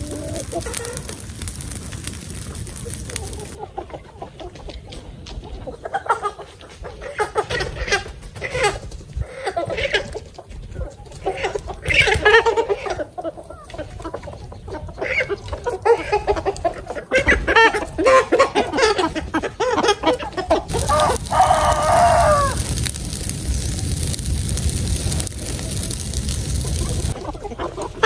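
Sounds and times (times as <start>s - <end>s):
steady hiss: 0.0s - 3.6s, 20.7s - 27.2s
chickens clucking: 0.0s - 28.0s
rooster crowing: 20.7s - 23.1s.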